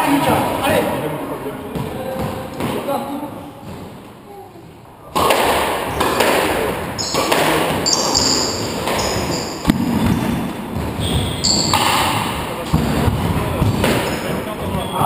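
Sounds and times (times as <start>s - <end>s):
squash ball strike: 5.1s - 14.9s
shoes squealing on wooden floor: 7.0s - 12.5s, 13.6s - 15.0s.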